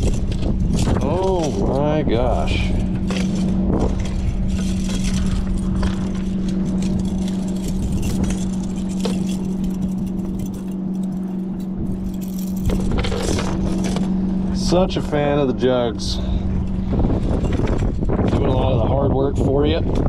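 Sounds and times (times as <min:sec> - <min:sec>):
low hum: 0:00.0 - 0:20.0
wind and water rumbling: 0:00.0 - 0:20.0
metal chain clinking and rattling: 0:02.6 - 0:14.2.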